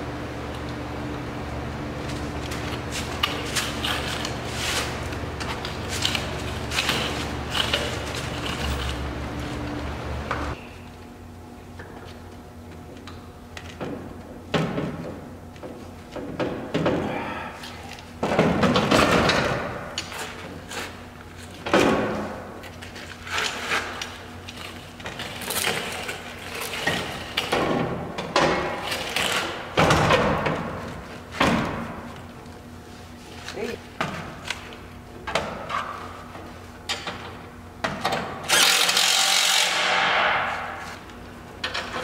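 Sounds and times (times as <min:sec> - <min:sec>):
steady low hum: 0:00.0 - 0:39.0
metal parts clunking and scraping: 0:02.6 - 0:09.1.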